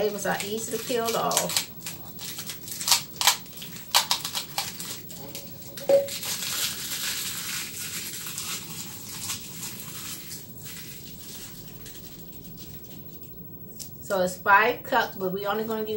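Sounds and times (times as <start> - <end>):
paper and plastic crinkling: 0.0 - 14.0
bowl ringing when set down: 5.8 - 6.2.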